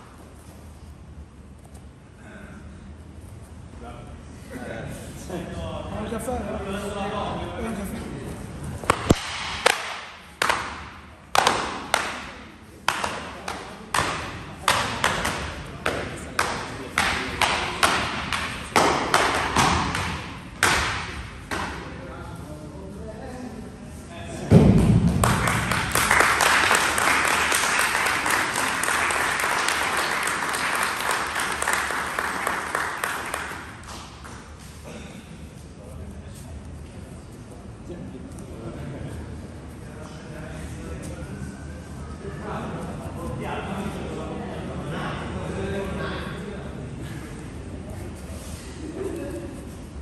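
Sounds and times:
people clapping: 8.8s - 21.7s, 24.8s - 34.6s.

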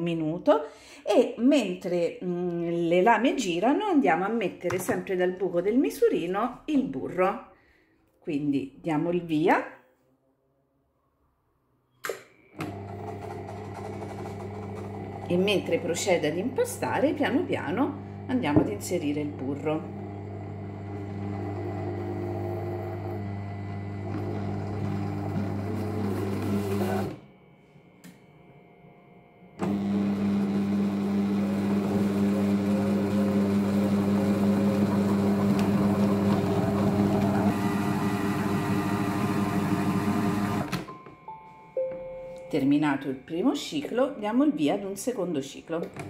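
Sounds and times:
food processor motor humming: 12.6s - 27.2s, 29.6s - 40.7s.

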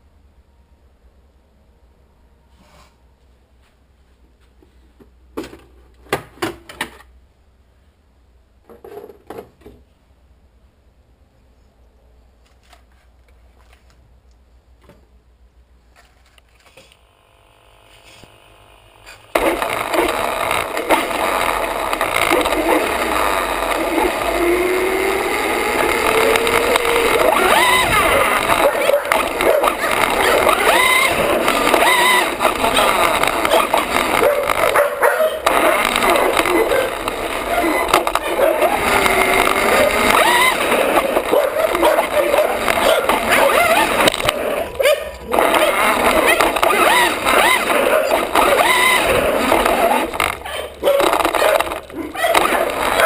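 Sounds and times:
faint low hum: 0.0s - 5.0s
electric motor whining: 16.9s - 53.0s
tyres rushing on paving stones: 19.2s - 53.0s.

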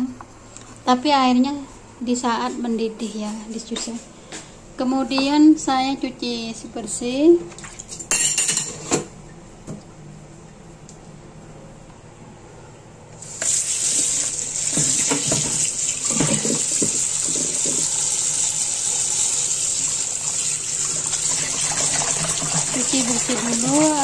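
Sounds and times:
tap running into basin: 13.4s - 24.0s.

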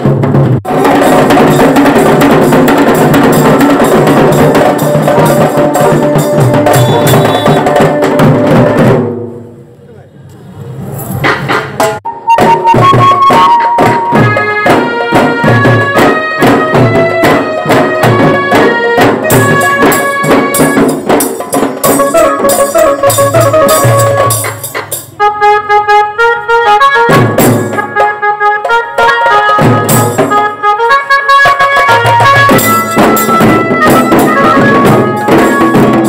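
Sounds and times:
steady drumming: 0.0s - 9.4s, 11.1s - 25.3s, 27.0s - 30.8s, 31.4s - 36.0s
brass horns playing melody: 6.5s - 8.0s, 13.1s - 20.9s, 25.2s - 36.0s.

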